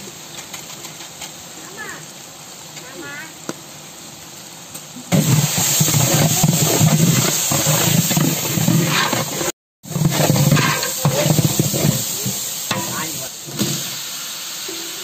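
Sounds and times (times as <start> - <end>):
onions sizzling in hot oil: 0.0 - 15.0
ladle scraping a metal pot: 5.2 - 13.1.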